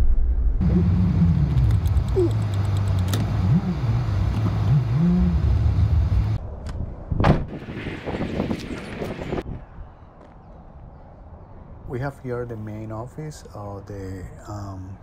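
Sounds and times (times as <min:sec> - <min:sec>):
car engine running at low speed: 0:00.6 - 0:06.4
sharp thump: 0:07.2 - 0:07.6.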